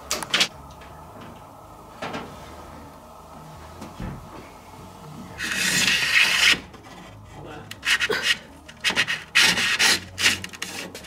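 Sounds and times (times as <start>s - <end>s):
rod scraping against wood: 5.4s - 11.0s.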